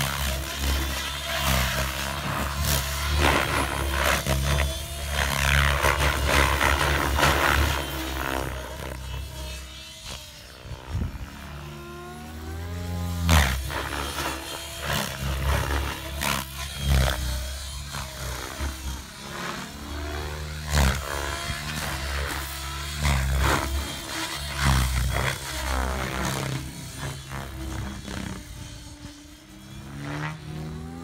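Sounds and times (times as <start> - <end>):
model helicopter rotor chopping: 0.0 - 31.0.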